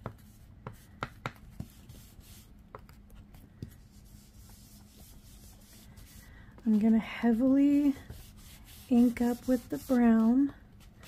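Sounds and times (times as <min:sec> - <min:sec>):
foam tool scuffing paper: 0:07.7 - 0:10.5.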